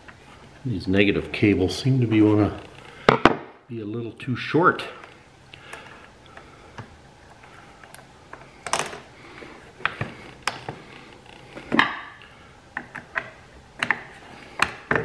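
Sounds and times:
metal hardware clicking and clinking: 7.8 - 9.1.

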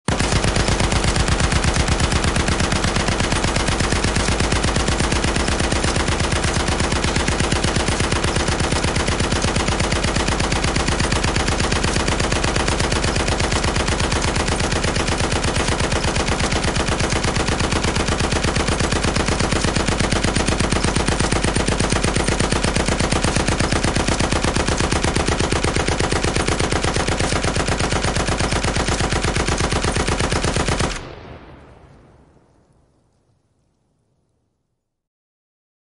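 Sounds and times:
machine gun firing: 0.1 - 32.0
gunfire echo: 0.1 - 32.9.

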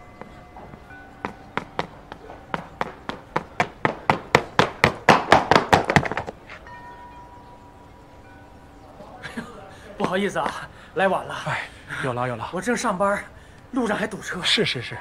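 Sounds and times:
sharp taps: 0.2 - 6.4
faint sustained tones: 6.5 - 10.0.

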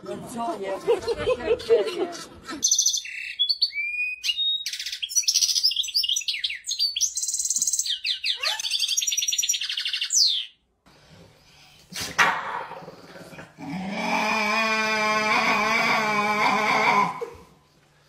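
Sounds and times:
finch twittering song: 2.6 - 10.6.

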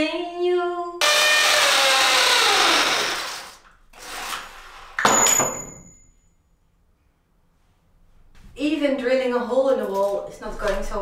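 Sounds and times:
electric drill running: 1.0 - 3.6
high ringing: 5.0 - 6.6.

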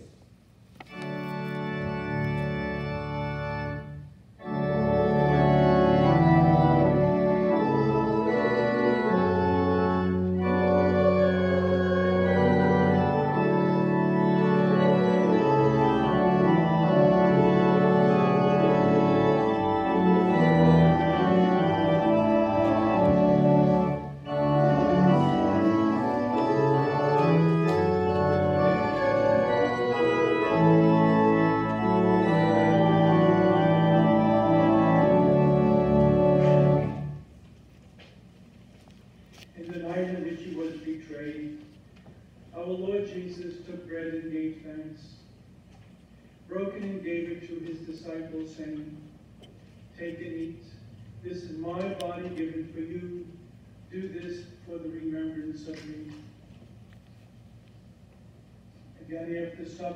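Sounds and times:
organ playing slow chords: 0.8 - 37.5, 46.1 - 56.9.

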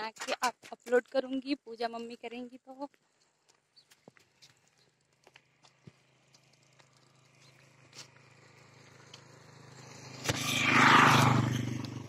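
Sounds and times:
vehicle engine passing: 6.1 - 12.0.

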